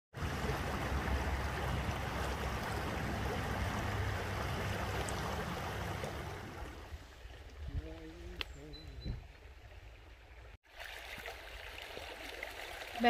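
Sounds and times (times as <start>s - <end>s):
river water rushing: 0.2s - 6.9s.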